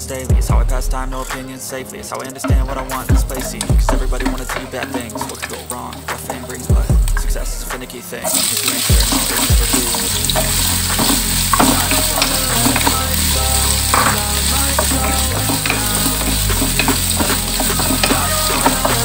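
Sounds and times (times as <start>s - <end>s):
vegetables sizzling in oil: 2.5s - 6.5s, 8.2s - 19.0s.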